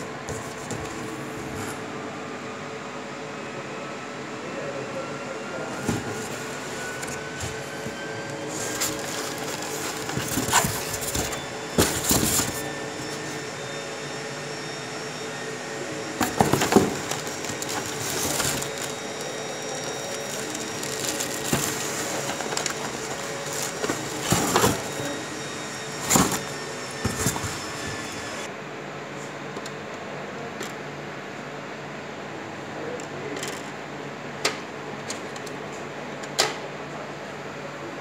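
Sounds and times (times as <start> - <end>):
steady background hum: 0.0 - 38.0
packing material rustling: 8.4 - 12.9, 16.2 - 25.1
plastic packaging crinkling: 8.5 - 12.8, 16.2 - 25.1.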